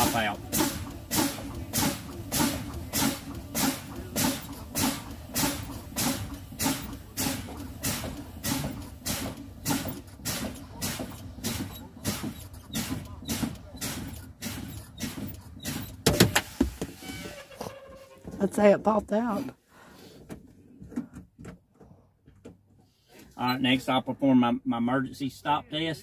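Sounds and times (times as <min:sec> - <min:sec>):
air brake hissing: 0:00.5 - 0:17.3.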